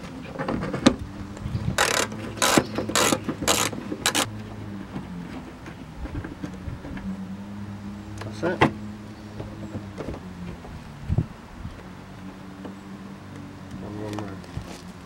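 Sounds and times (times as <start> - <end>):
ratchet wrench clicking: 1.8 - 4.3.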